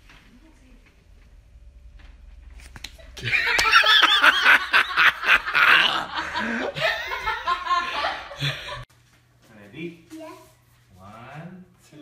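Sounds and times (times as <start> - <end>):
high-pitched giggling and laughter: 3.2 - 8.8.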